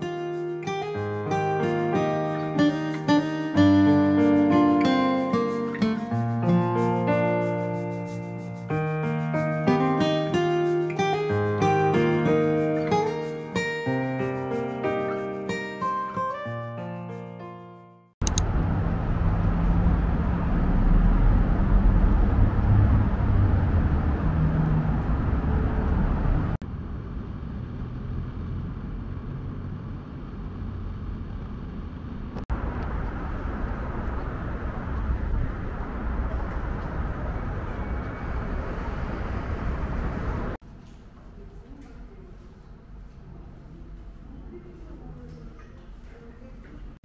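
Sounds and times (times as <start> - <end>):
heavy low rumble: 18.2 - 40.6
traffic noise: 18.2 - 41.1.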